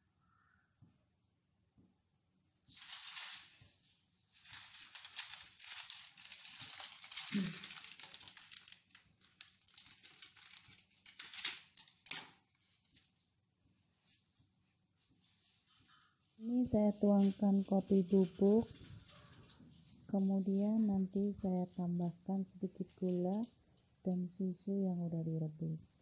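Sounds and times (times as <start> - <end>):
plastic packaging crinkling: 2.7 - 13.2, 17.0 - 23.5.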